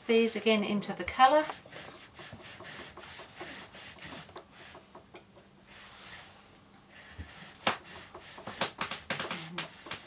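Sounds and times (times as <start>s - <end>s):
iron rubbing on fabric: 1.3s - 5.0s, 5.7s - 10.0s.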